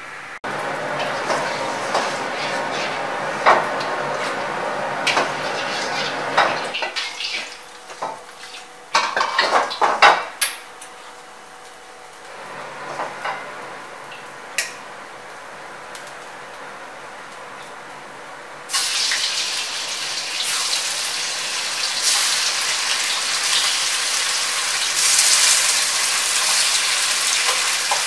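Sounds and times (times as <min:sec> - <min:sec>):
metal ladle scraping a wok: 0:01.3 - 0:03.2.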